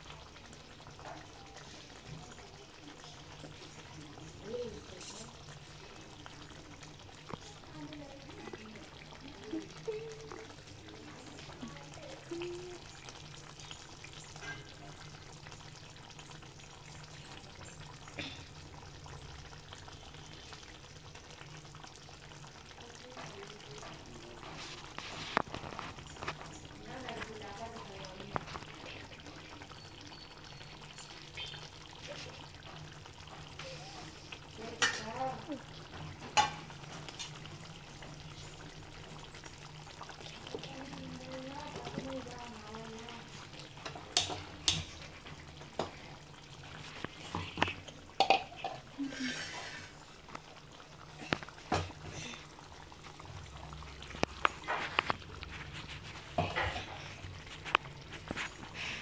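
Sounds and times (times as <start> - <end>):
gravy simmering and bubbling: 0.0 - 59.0
bubbles bursting with pops: 43.1 - 49.0, 50.1 - 58.8.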